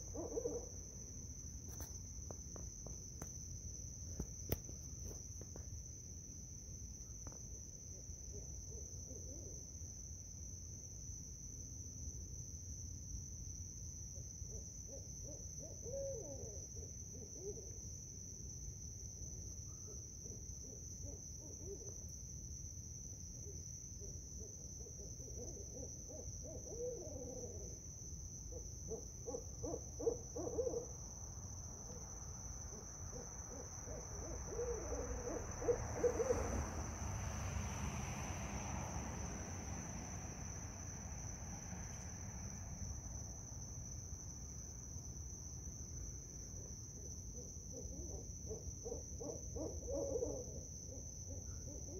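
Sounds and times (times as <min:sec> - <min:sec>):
high insect trill: 0:00.0 - 0:51.9
owls hooting: 0:33.1 - 0:36.5, 0:47.7 - 0:50.6.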